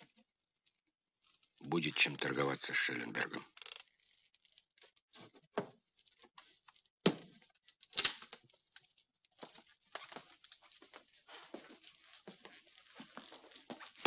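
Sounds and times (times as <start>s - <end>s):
papers and folder rustling: 3.9s - 14.0s.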